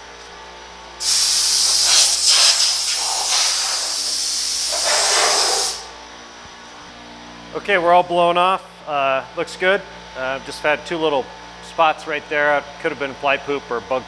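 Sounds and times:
compressed air blow gun hissing: 1.0 - 5.9.

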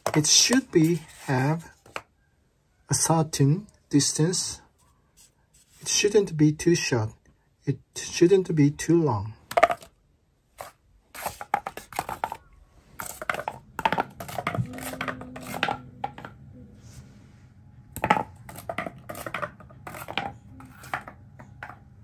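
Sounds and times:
cardboard tapping on hard floor: 13.0 - 16.3, 18.0 - 21.8.

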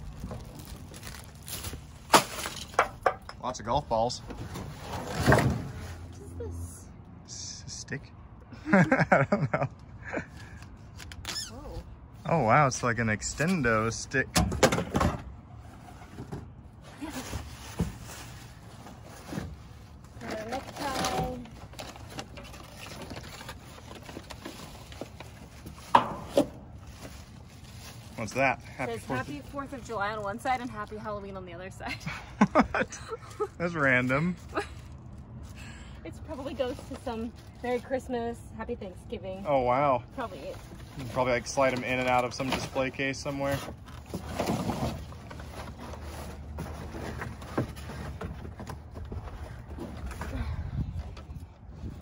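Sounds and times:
cardboard rustling and scraping: 15.6 - 30.8, 40.2 - 52.0.

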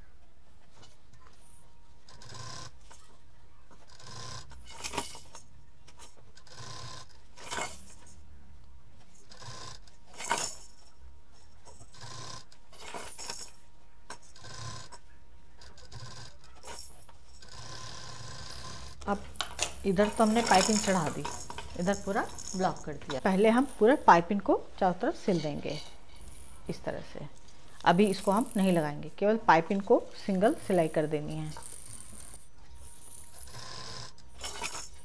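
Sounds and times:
plastic toys clacking: 19.2 - 24.0.

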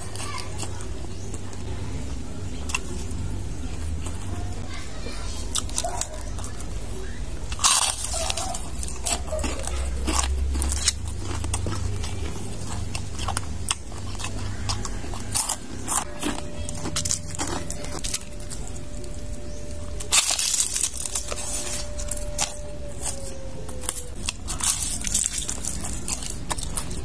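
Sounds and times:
crunchy food chewing: 0.0 - 27.0
low hum: 5.5 - 27.0.

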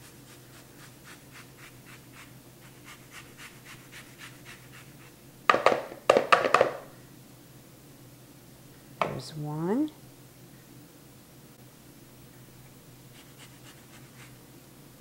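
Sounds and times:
grater rasping on orange: 0.0 - 5.2, 13.1 - 14.4
grater knocking against bowl: 5.5 - 6.8.

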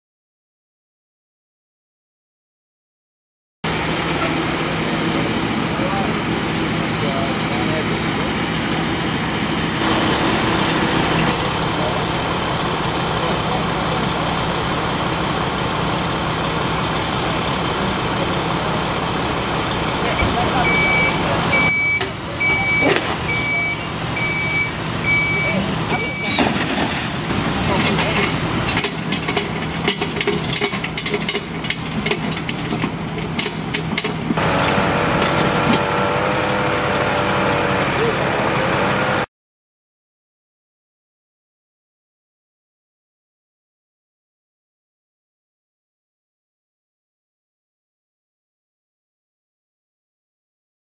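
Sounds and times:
truck engine idling: 3.7 - 39.0.

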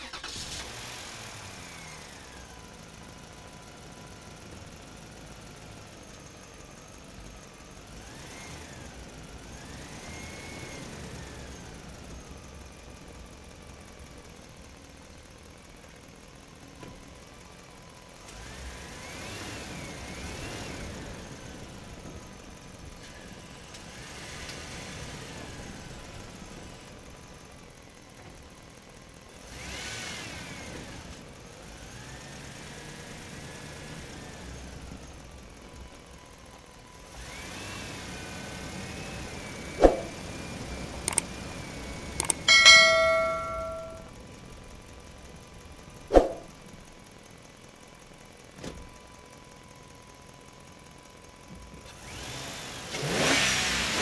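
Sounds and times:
engine running: 33.9 - 54.0.

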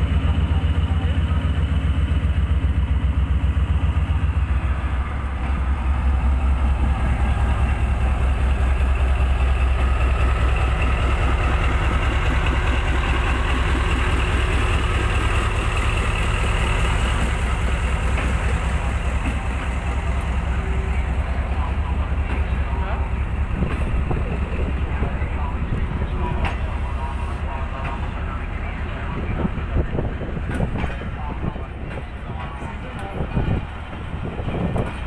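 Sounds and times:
diesel locomotive throbbing: 0.0 - 35.0
train wheels on rails: 0.0 - 35.0.

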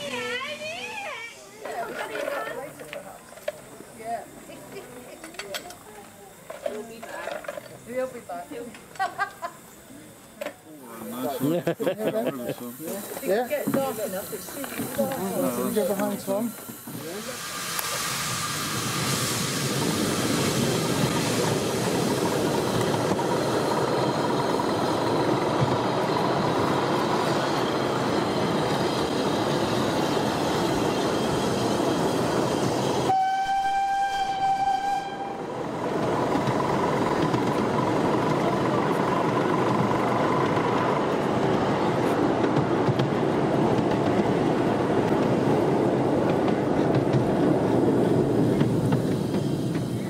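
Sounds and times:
wheels running on rail: 0.0 - 50.0
steam locomotive whistle: 32.9 - 35.6.

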